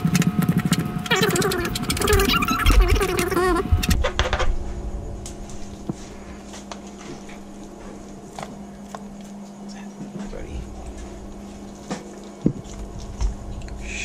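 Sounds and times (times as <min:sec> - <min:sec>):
steady low hum: 0:00.0 - 0:14.0
loud wavering voice-like sound: 0:01.0 - 0:04.0.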